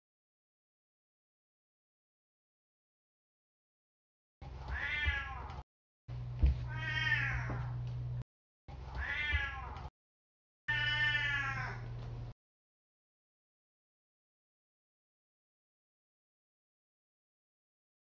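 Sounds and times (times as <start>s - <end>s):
cat meowing: 4.6s - 5.6s, 6.6s - 7.8s, 8.9s - 9.9s, 10.7s - 11.8s.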